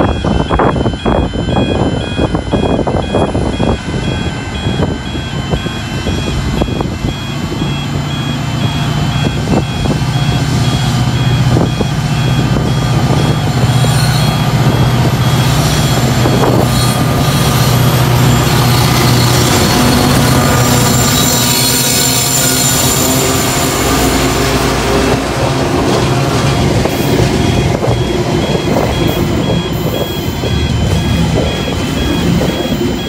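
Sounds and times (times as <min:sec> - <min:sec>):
diesel locomotive engine drone: 0:00.0 - 0:33.0
level crossing bells ringing: 0:00.0 - 0:33.0.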